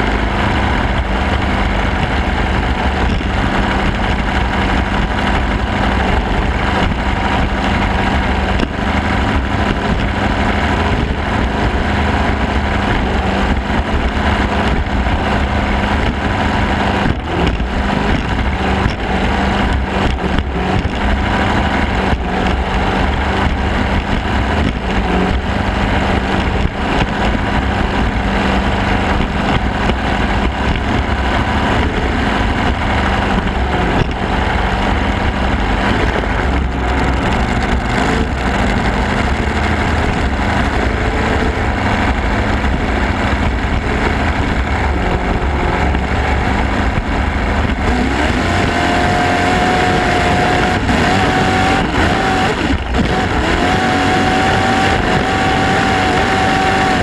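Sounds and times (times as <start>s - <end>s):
boat engine running: 0.0s - 57.0s.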